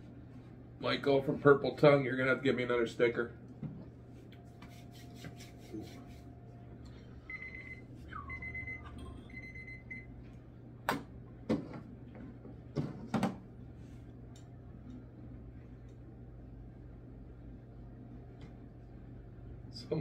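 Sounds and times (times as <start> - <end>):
timer beeping: 7.3 - 10.1.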